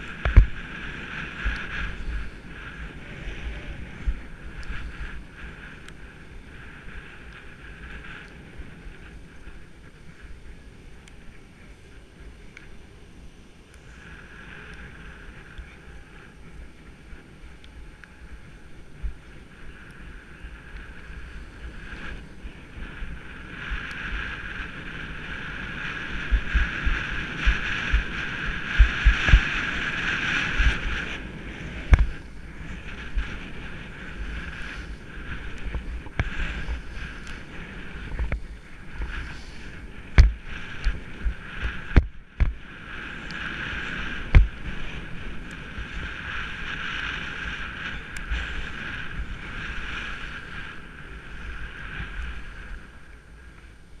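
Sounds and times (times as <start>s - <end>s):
wind thumps on microphone: 0.0s - 11.3s, 20.7s - 53.8s
skis swishing through snow: 19.0s - 53.7s.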